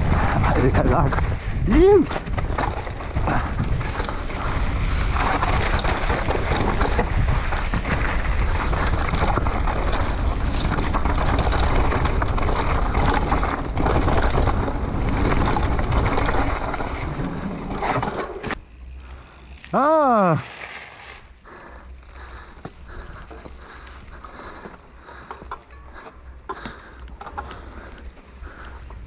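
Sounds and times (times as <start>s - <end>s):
wind rushing on microphone: 0.0s - 16.6s
bike rattling: 0.0s - 29.0s.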